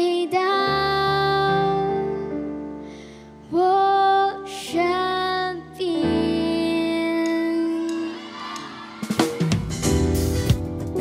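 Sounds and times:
girl singing into microphone: 0.0s - 2.6s, 3.4s - 8.3s
soft instrumental accompaniment: 0.0s - 11.0s.

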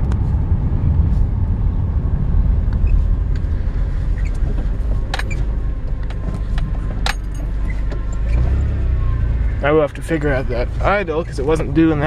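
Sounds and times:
car engine low rumble: 0.0s - 12.0s.

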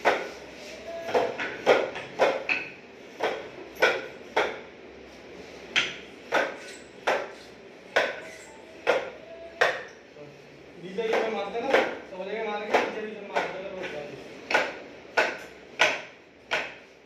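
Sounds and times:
hammer striking plastic panelling: 14.5s - 16.8s.

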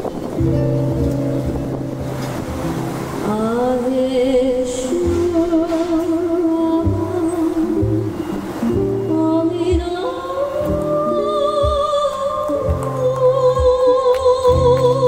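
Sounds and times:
ukuleles and acoustic guitar: 0.0s - 15.0s
woman singing: 3.2s - 15.0s.

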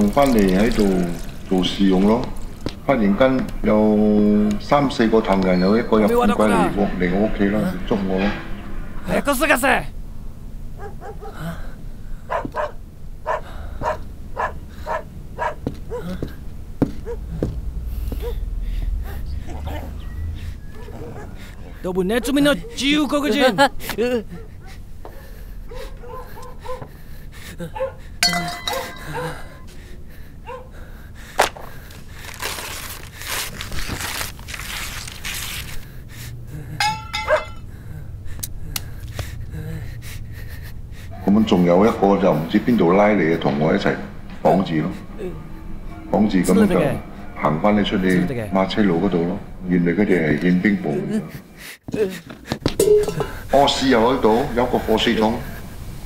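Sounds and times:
dog barking and yelping: 10.8s - 11.4s, 12.2s - 16.3s, 17.0s - 17.4s, 18.1s - 23.0s, 24.2s - 26.9s, 27.6s - 28.0s, 28.7s - 29.7s, 30.4s - 30.8s, 37.1s - 37.6s
boots shuffling on tiled floor: 15.4s - 18.4s
clicks clinks and crunching: 28.2s - 29.4s, 36.8s - 37.6s.

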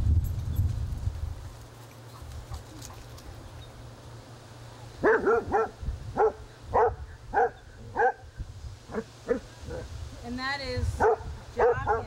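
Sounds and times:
dog barking: 5.0s - 8.2s, 8.9s - 9.9s, 11.0s - 12.0s.

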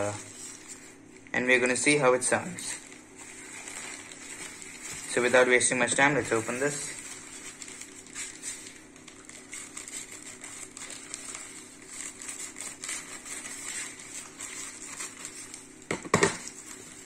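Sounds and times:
plastic mailer crinkling: 0.0s - 17.0s.

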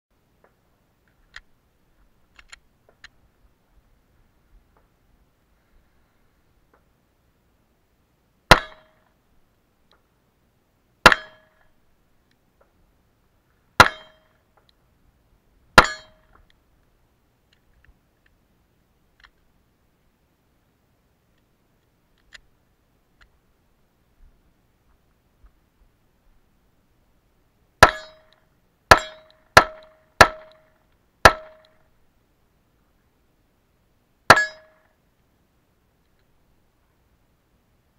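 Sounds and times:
steel target ringing: 8.5s - 9.0s, 11.0s - 11.6s, 13.8s - 14.4s, 15.8s - 16.3s, 27.8s - 30.6s, 31.2s - 31.8s, 34.3s - 34.9s.

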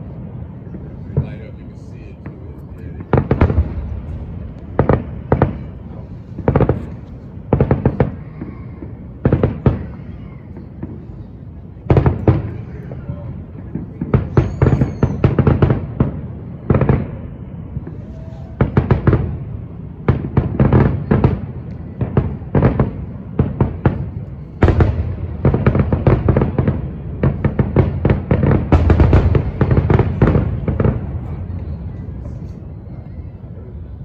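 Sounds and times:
low echoing rumble: 0.0s - 9.2s
firework bangs and crackling: 0.0s - 34.0s.

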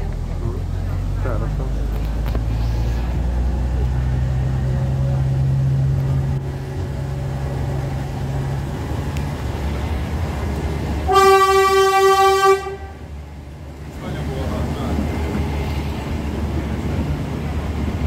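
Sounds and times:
train engine hum: 0.0s - 18.0s
train horn toot: 11.1s - 13.1s.

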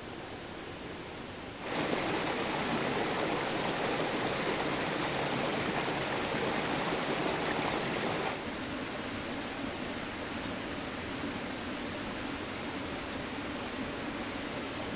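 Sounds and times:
stream rushing over rocks: 1.4s - 8.6s.

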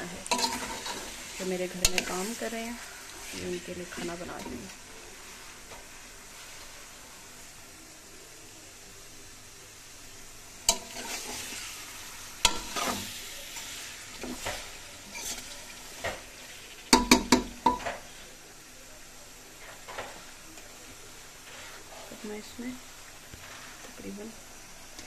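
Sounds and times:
oil sizzling: 0.0s - 25.0s
spoon scraping metal pot: 0.2s - 1.1s, 14.3s - 15.6s.

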